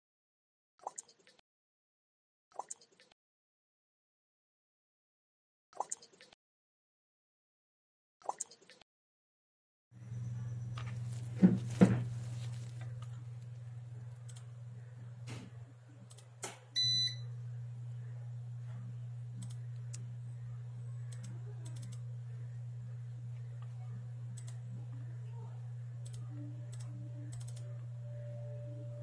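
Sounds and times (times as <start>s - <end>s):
electrical hum: 10.0s - 29.0s
sharp clicks: 14.2s - 14.5s, 16.1s - 16.6s, 19.4s - 20.1s, 21.0s - 22.0s, 24.4s - 24.6s, 26.0s - 27.7s
short electronic beep: 16.8s - 17.3s.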